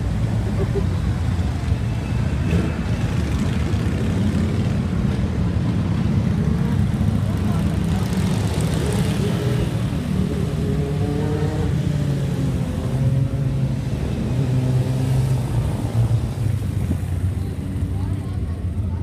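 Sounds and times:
motorcycle engines revving past: 5.8 - 18.2.

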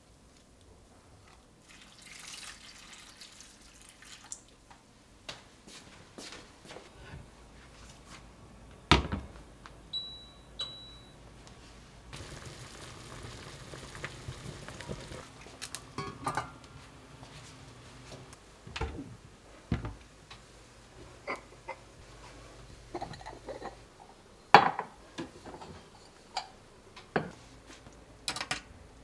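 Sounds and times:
pot boiling and bubbling: 1.6 - 4.6, 12.1 - 16.0
electronic appliance beeps: 9.9 - 11.2.

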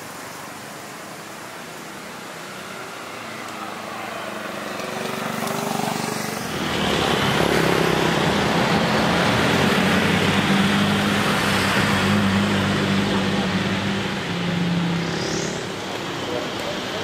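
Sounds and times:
motorcycles passing: 0.9 - 17.0
car passing: 1.9 - 17.0.

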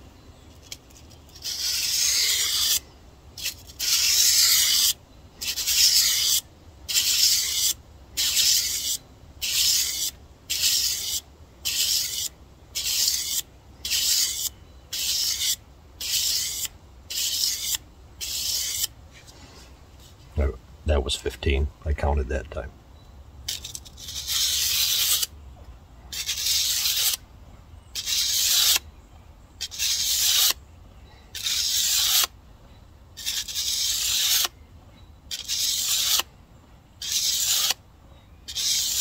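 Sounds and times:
knife scraping on sandpaper: 0.5 - 2.8, 3.4 - 19.7, 23.5 - 25.3, 26.1 - 27.2, 28.0 - 28.8, 29.6 - 30.6, 31.3 - 32.3, 33.2 - 34.6, 35.3 - 36.3, 37.0 - 37.8, 38.5 - 39.0.

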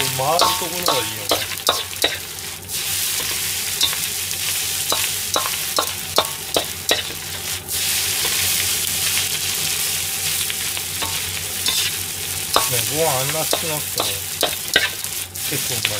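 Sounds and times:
rice sizzling in a wok: 0.0 - 15.9
metal ladle scraping a wok: 3.1 - 4.1, 11.0 - 12.7.

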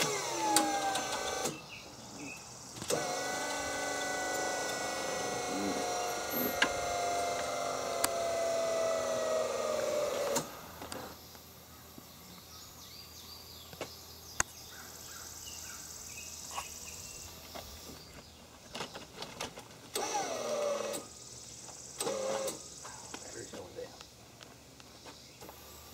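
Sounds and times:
lift motor whining: 0.0 - 1.8, 2.7 - 11.2, 19.9 - 21.2, 22.0 - 22.7.

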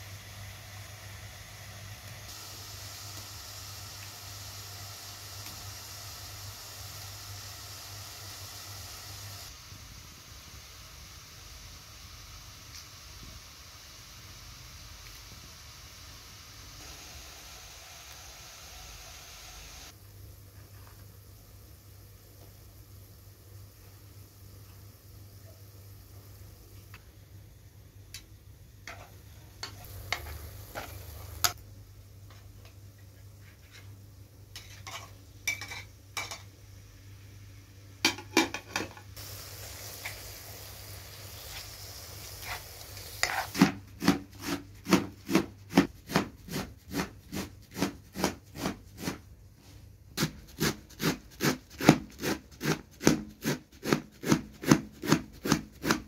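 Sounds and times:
onions sizzling: 0.0 - 32.8, 33.4 - 52.4
spatula scraping a frying pan: 34.5 - 36.4, 42.4 - 49.2.

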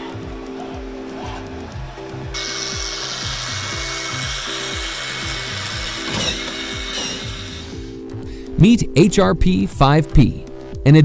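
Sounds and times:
background music with steady beat: 0.0 - 11.0
power screwdriver whining: 2.4 - 8.1.

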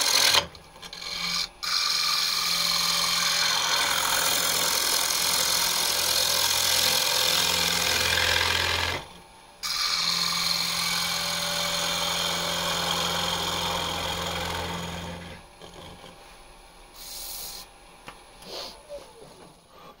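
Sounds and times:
tool scraping wood on lathe: 0.0 - 9.1, 9.7 - 16.4
lathe motor humming: 0.0 - 16.2.

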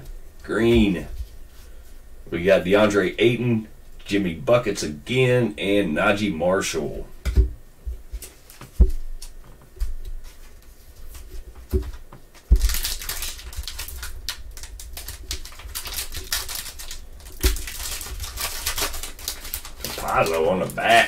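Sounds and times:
dull thumps: 7.2 - 10.2, 11.4 - 12.8
foil wrapper crinkling: 10.3 - 21.0.

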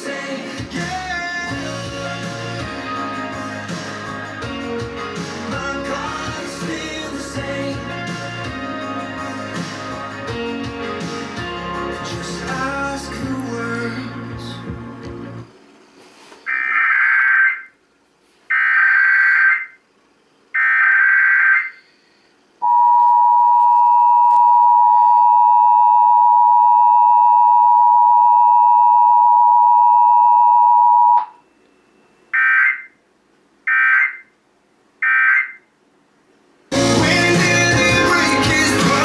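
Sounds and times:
two-tone attention signal: 22.6 - 31.4.

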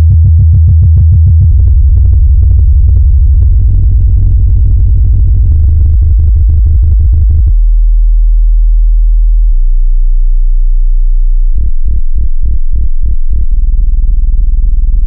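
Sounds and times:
deep synthesized bass tones: 0.0 - 15.0.

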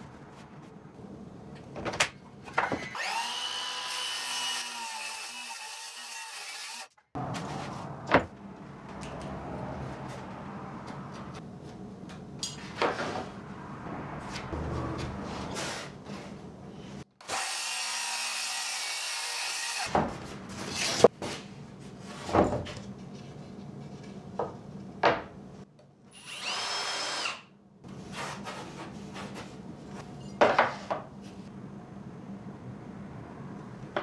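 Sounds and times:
power drill whining: 26.2 - 27.4.

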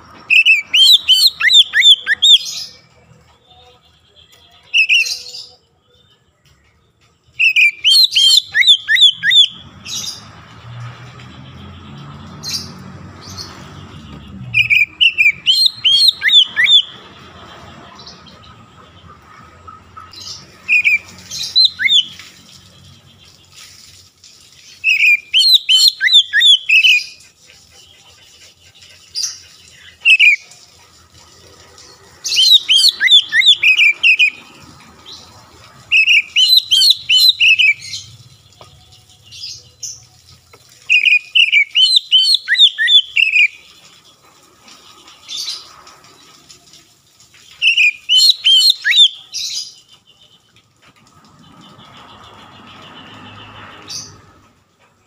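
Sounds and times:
bird singing whistled notes: 0.3 - 2.8, 3.5 - 6.2, 7.3 - 10.2, 12.5 - 17.0, 20.3 - 22.3, 24.7 - 27.2, 29.8 - 30.4, 32.3 - 34.4, 35.9 - 38.2, 40.8 - 43.7, 47.5 - 49.6.

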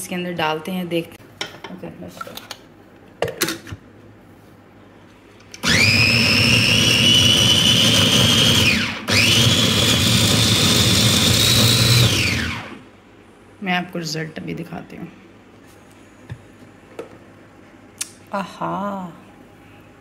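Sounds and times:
electric chopper motor whirring: 5.6 - 6.2, 6.8 - 12.8.

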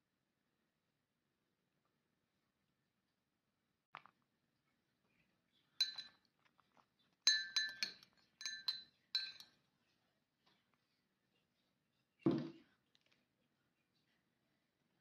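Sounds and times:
fork clinking against porcelain cup: 5.8 - 6.3, 7.2 - 9.6.

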